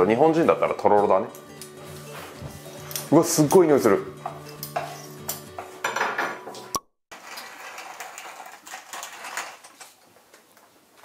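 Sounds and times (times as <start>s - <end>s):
wooden spoon stirring fondue: 4.2s - 5.8s.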